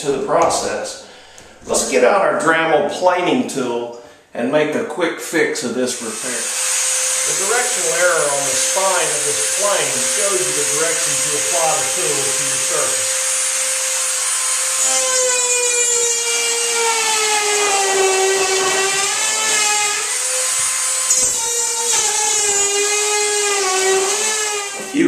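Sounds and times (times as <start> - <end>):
rotary tool high whine: 6.0 - 25.0.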